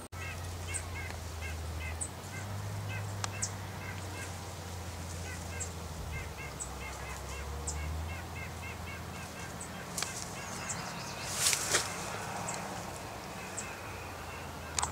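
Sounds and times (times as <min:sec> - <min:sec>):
birds honking: 0:00.0 - 0:14.9
faint high bird chips: 0:00.2 - 0:14.9
brief rustle: 0:11.3 - 0:12.6.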